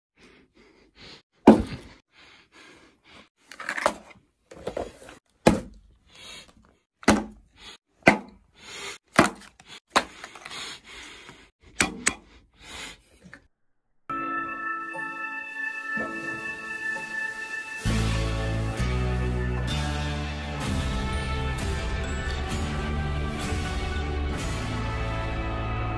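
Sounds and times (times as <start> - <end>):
music: 14.1 - 25.9.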